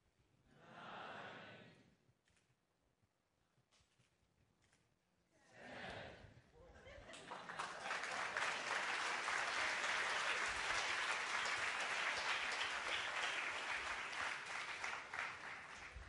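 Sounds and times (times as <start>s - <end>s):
audience applauding: 7.1s - 16.0s.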